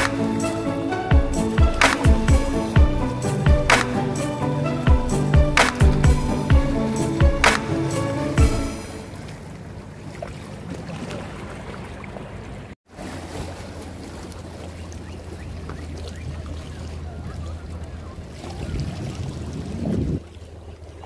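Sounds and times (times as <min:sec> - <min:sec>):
water sloshing and lapping: 0:00.0 - 0:21.0
wind on microphone: 0:16.8 - 0:20.4.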